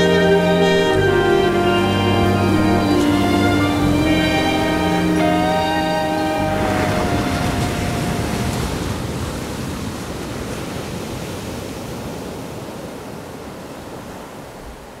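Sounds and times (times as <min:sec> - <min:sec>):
steady rushing noise: 0:00.0 - 0:09.9.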